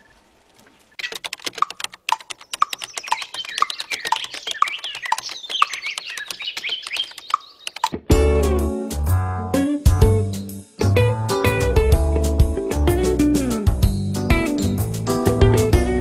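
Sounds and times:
birds chirping: 0.0s - 8.0s
fast typing on keyboard: 1.0s - 8.0s.

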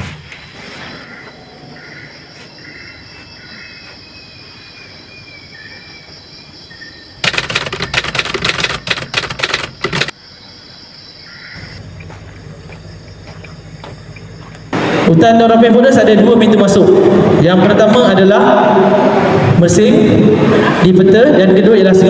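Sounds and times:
high insect whine: 0.0s - 15.9s
typewriter keys clicking: 7.2s - 10.1s.

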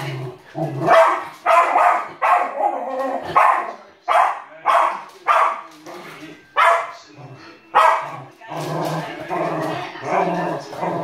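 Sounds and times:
dog barking: 0.8s - 5.7s, 6.6s - 7.0s, 7.8s - 8.2s.

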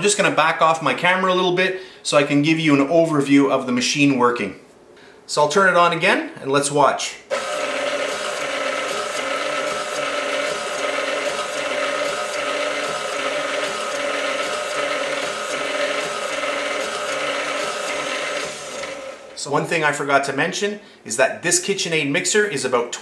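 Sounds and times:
stand mixer motor hum: 7.3s - 19.4s.

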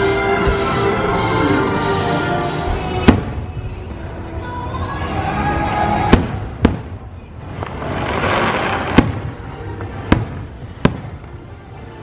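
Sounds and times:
firework hissing: 0.0s - 3.6s.

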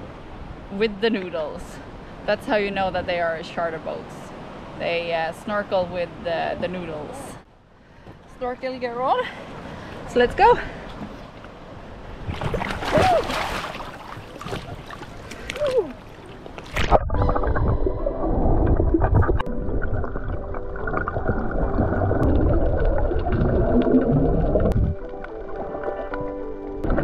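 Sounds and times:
water splashing: 12.2s - 27.0s
muffled underwater rush and bubbles: 13.8s - 27.0s.

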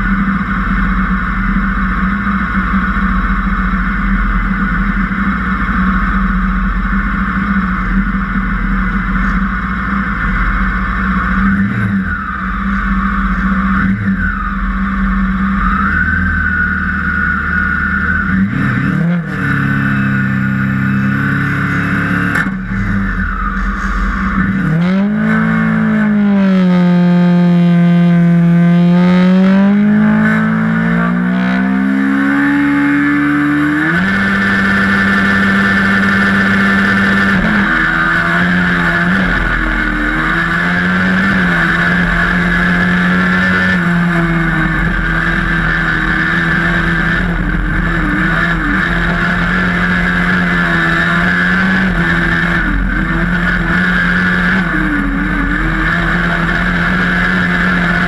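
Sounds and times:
racing buggy engine revving: 0.0s - 58.0s.

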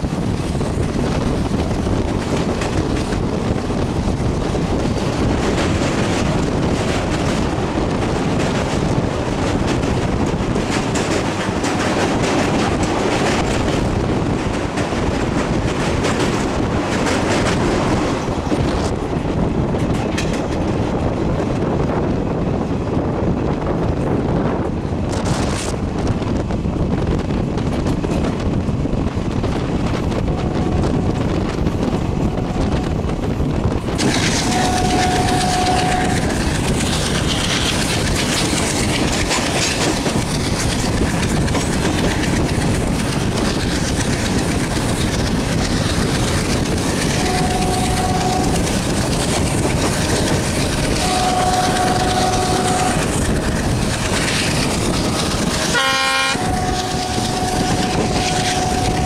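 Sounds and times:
rushing air: 0.0s - 59.0s
train wheels clattering on rails: 0.0s - 59.0s
locomotive horn blasts: 34.4s - 36.4s, 47.1s - 48.7s, 51.0s - 53.2s, 55.7s - 59.0s.

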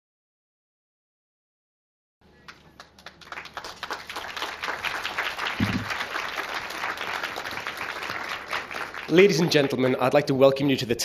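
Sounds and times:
audience applauding: 2.4s - 10.2s.

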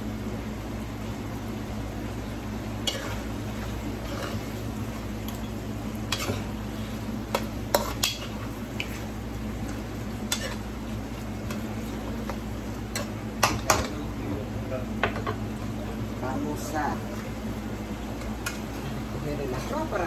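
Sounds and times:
light sizzle: 0.0s - 20.0s
steady low hum: 0.0s - 20.0s
spatula scraping frying pan: 2.8s - 4.7s, 6.0s - 9.2s, 10.2s - 10.8s.

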